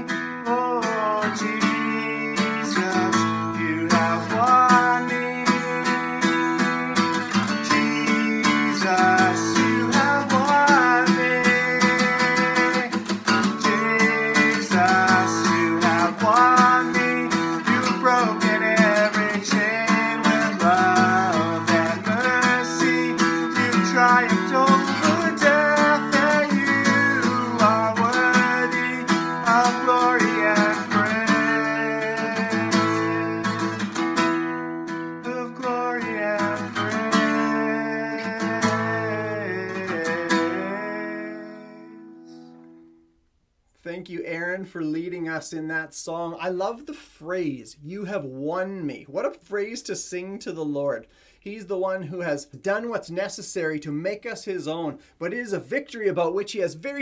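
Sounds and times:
man singing: 0:00.0 - 0:34.1, 0:35.2 - 0:42.6
strummed acoustic guitar: 0:00.0 - 0:43.0.

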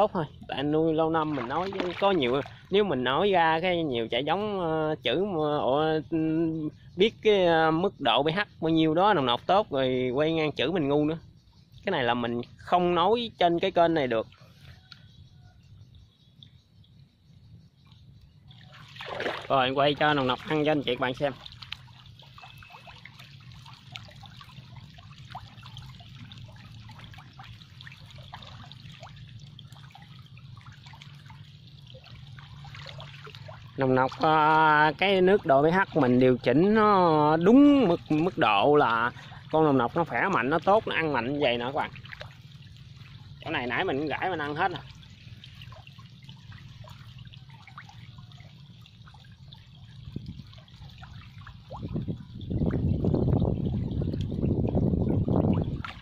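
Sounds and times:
water trickling and plinking: 0:00.0 - 0:56.0
steady low hum: 0:14.3 - 0:34.2, 0:40.8 - 0:44.2, 0:44.8 - 0:56.0
small pops and drips on water: 0:17.8 - 0:34.3, 0:54.1 - 0:54.4.

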